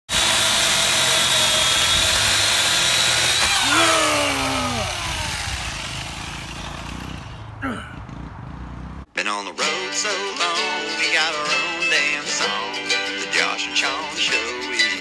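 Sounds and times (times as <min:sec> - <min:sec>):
electric chainsaw cutting branch: 0:00.1 - 0:07.5.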